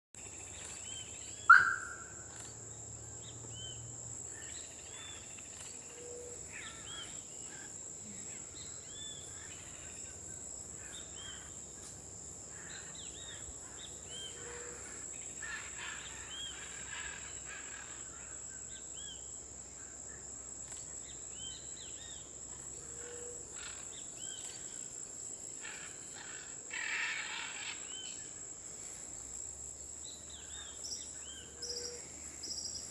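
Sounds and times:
birds chirping: 0.6s - 2.6s.

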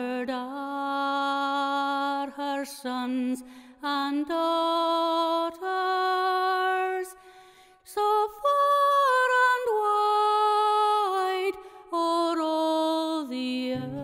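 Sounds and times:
person singing unaccompanied: 13.2s - 14.0s
low plucked notes: 13.8s - 14.0s.

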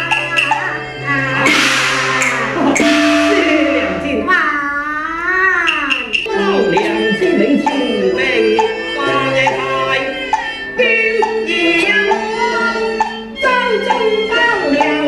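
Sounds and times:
instrumental ensemble: 0.0s - 4.8s, 5.7s - 15.0s
opera singer singing: 6.3s - 15.0s.

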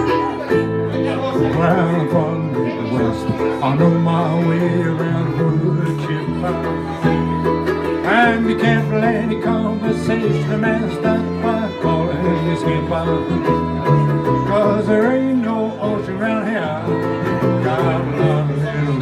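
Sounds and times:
fiddle: 0.0s - 19.0s
strummed acoustic guitar: 0.0s - 19.0s
ukulele: 0.0s - 19.0s.

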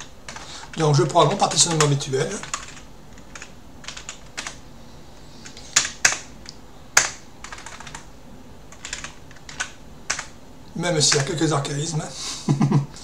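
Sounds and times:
computer keyboard typing: 0.0s - 4.6s, 5.4s - 8.1s, 8.7s - 10.4s, 11.0s - 11.4s.

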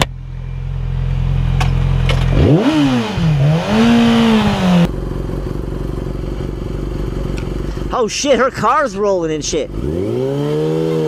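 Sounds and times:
motorcycle engine revving: 0.0s - 8.0s, 9.4s - 11.0s
low motorcycle engine hum: 0.0s - 11.0s.

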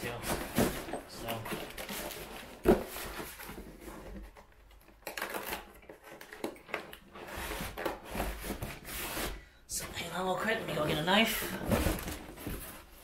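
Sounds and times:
cardboard scraping and rustling: 5.2s - 9.4s, 10.8s - 13.0s.

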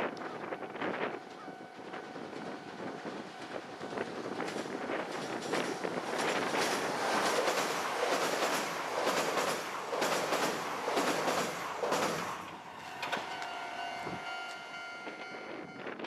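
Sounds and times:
wind buffeting microphone: 0.0s - 12.4s, 14.0s - 16.0s
train wheels clacking on rails: 0.4s - 16.0s
steady multi-pitched tone: 12.6s - 16.0s.

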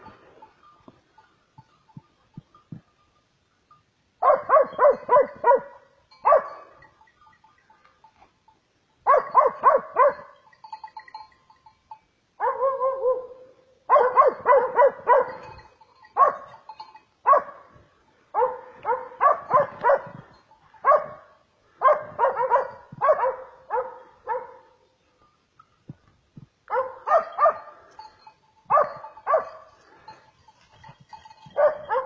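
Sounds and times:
dog barking: 4.2s - 6.7s, 9.1s - 10.4s, 12.4s - 15.5s, 16.2s - 16.5s, 17.2s - 20.2s, 20.8s - 24.8s, 26.7s - 27.9s, 28.7s - 29.7s, 31.5s - 32.0s.

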